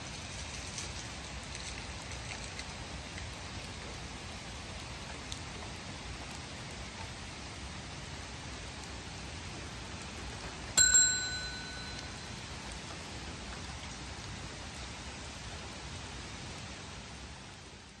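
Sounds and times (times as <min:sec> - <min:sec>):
steady hiss: 0:00.0 - 0:18.0
bell-like chime: 0:10.8 - 0:12.6.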